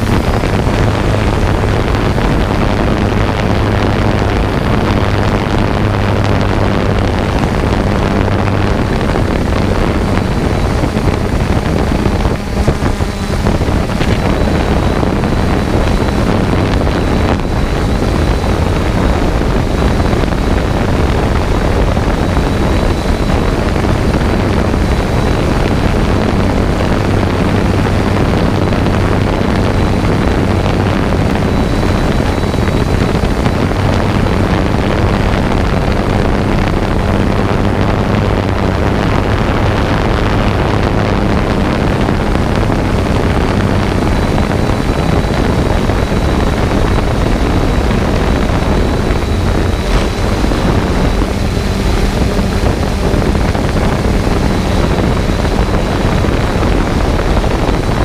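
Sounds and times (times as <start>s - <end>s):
drone motors whirring: 0.0s - 58.0s
wind on microphone: 0.0s - 58.0s.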